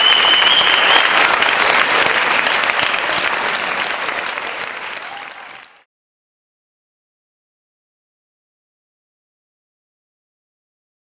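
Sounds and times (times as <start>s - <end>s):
long high whistle: 0.0s - 1.2s
audience applauding: 0.0s - 5.9s.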